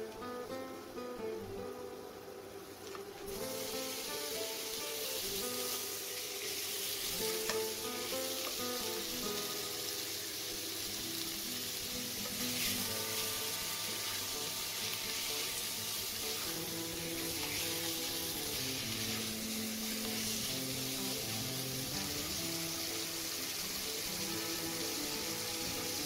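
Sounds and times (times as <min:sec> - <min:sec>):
meat sizzling in hot oil: 0:02.7 - 0:26.0
spatula stirring meat: 0:12.1 - 0:21.6.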